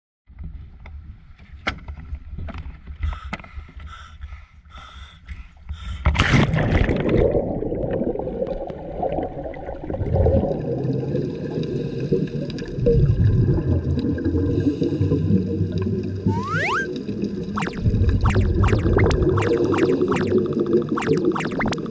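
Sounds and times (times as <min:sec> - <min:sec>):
splash into water: 0:06.2 - 0:07.5.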